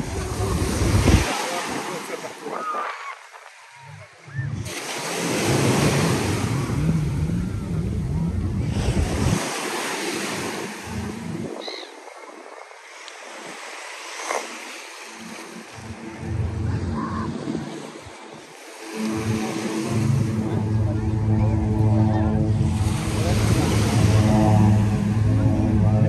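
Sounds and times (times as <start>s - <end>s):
wind rumbling on microphone: 0.0s - 13.6s, 19.2s - 26.0s
waves washing onto beach: 0.0s - 26.0s.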